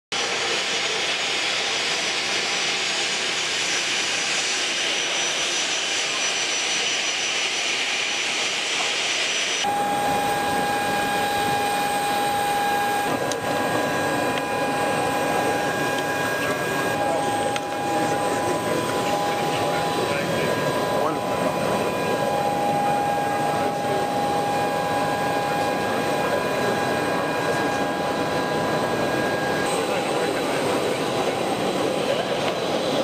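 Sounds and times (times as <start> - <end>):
jet engines whining: 0.2 - 33.0
voices: 9.6 - 33.0.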